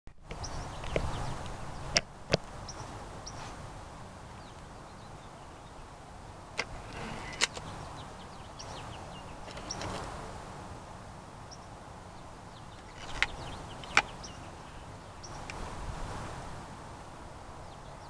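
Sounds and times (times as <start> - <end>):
small birds chirping: 0.2 - 3.6, 4.2 - 10.5, 11.4 - 15.6, 17.6 - 18.0.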